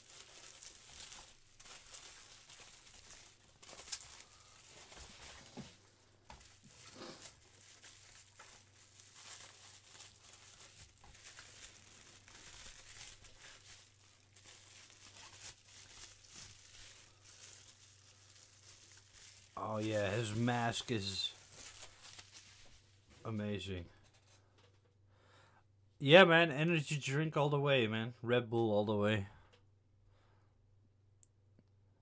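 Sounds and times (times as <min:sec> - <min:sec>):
bubble wrap crinkling: 0:00.0 - 0:23.4, 0:24.0 - 0:24.4.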